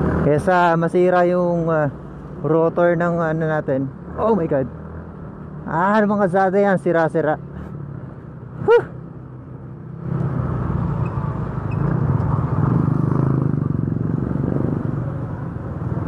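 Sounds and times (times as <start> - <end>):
wind and tyre noise: 0.0 - 16.0
person yelping: 8.6 - 9.0.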